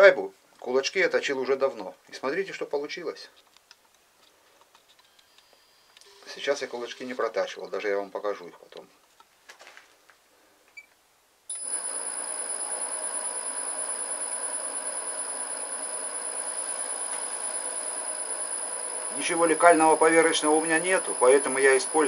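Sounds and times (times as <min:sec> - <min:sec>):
lathe running with high tone: 0:11.5 - 0:22.0.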